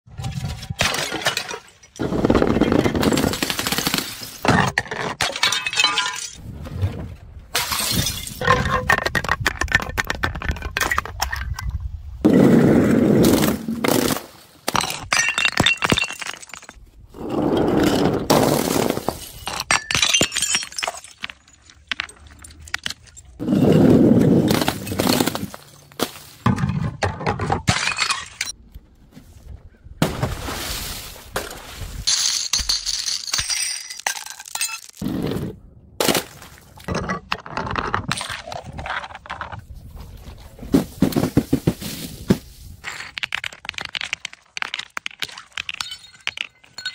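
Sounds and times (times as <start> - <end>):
glass bottles smashing on stone: 0.8 - 6.4, 7.6 - 9.0, 14.7 - 16.8, 18.3 - 23.2, 27.7 - 28.5, 32.1 - 35.0, 45.2 - 46.9
glass shards clinking and scattering: 5.2 - 6.4, 32.1 - 35.0, 45.7 - 46.9.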